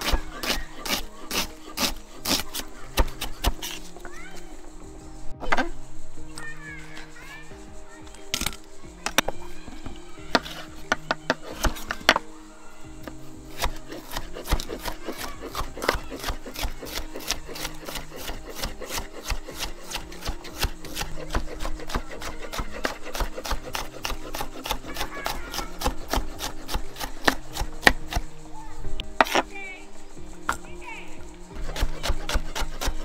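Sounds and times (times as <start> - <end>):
knife chopping on cutting board: 0.0 - 3.9, 10.3 - 12.2, 13.5 - 28.3, 31.6 - 33.0
background music: 0.0 - 33.0.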